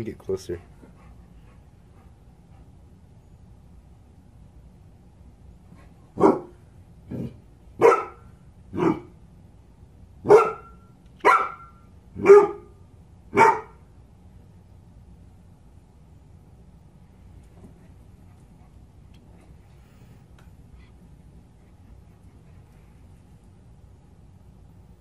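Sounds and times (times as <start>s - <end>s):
dog barking: 6.2s - 6.6s, 7.8s - 9.1s, 10.2s - 12.7s, 13.3s - 13.8s.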